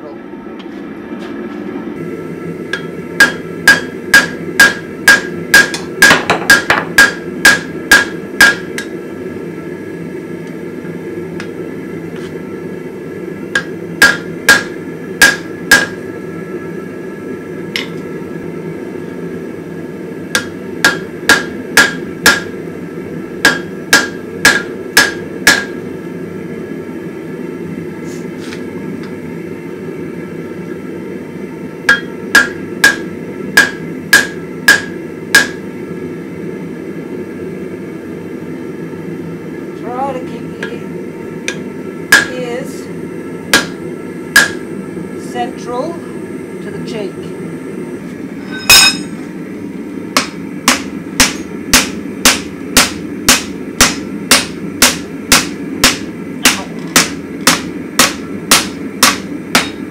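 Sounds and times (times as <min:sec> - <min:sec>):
steady low hum: 0:00.0 - 0:59.9
hammer striking steel on anvil: 0:02.7 - 0:08.9, 0:13.6 - 0:16.0, 0:20.3 - 0:22.5, 0:23.4 - 0:25.8, 0:31.9 - 0:35.6, 0:41.5 - 0:42.4, 0:43.5 - 0:43.8, 0:44.4 - 0:44.6, 0:48.4 - 0:49.2, 0:50.2 - 0:59.8.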